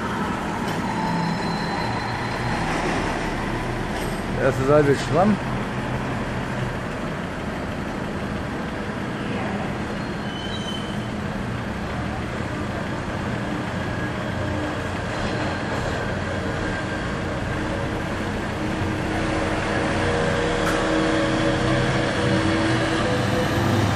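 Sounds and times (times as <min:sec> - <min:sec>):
ship machinery rumbling: 0:11.0 - 0:23.9.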